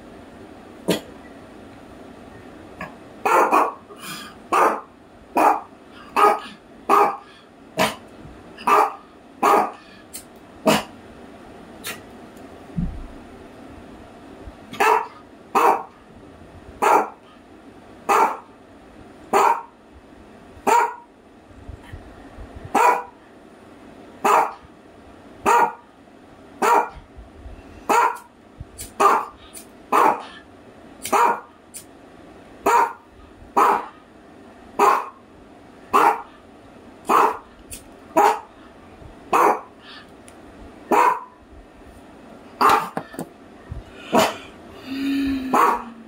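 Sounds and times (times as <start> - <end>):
dog barking: 3.2 - 3.8, 4.5 - 7.2, 8.6 - 9.8, 14.8 - 15.9, 16.8 - 17.2, 18.1 - 18.5, 19.3 - 19.7, 20.6 - 21.1, 22.8 - 23.2, 24.2 - 24.6, 25.4 - 25.8, 26.6 - 27.0, 27.9 - 28.3, 29.0 - 30.3, 31.1 - 31.5, 32.6 - 33.0, 33.6 - 34.0, 34.8 - 35.2, 35.9 - 36.3, 37.1 - 37.5, 38.2 - 38.5, 39.3 - 39.7, 40.9 - 41.4, 42.6 - 43.0, 45.5 - 45.9.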